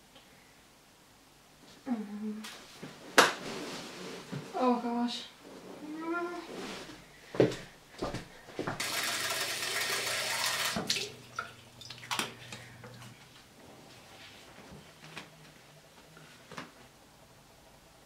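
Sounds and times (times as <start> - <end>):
water running from sink tap: 8.8 - 12.4.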